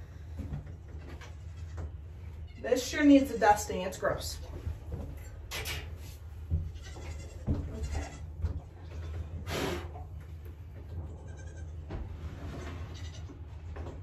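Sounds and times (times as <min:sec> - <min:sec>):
goat kids bleating: 0:06.7 - 0:08.3, 0:11.1 - 0:11.8.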